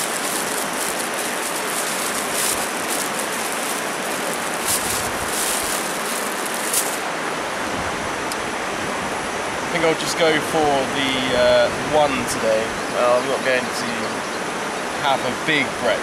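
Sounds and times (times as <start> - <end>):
plastic bag crinkling: 0.0 - 7.1
river rapids rushing: 0.0 - 7.6.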